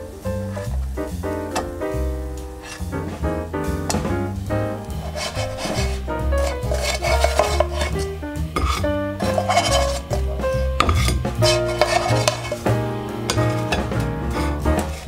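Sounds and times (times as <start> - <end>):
background music with bass line: 0.0 - 15.0
bread scraping across frying pan: 0.5 - 1.0, 2.5 - 3.2, 4.8 - 15.0.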